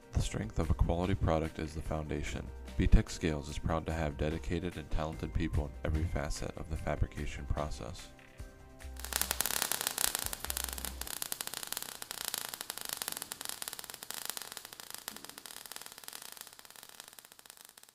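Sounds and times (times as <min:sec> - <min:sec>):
crackling static hiss: 0:08.2 - 0:17.9.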